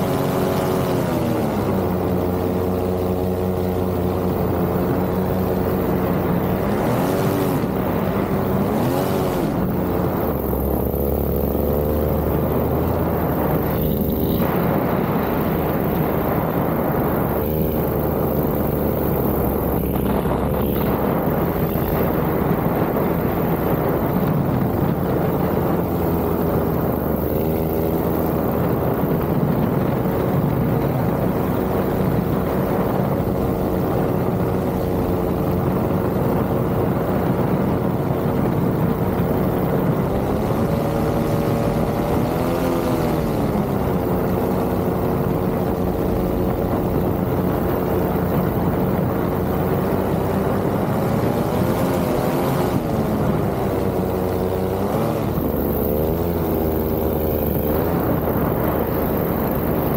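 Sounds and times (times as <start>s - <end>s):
paramotor engine and propeller: 0.0s - 59.9s.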